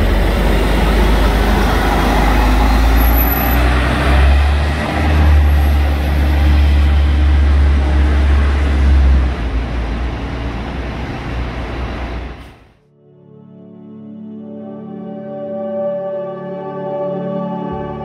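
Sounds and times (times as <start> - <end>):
bus engine rumbling: 0.0 - 12.8.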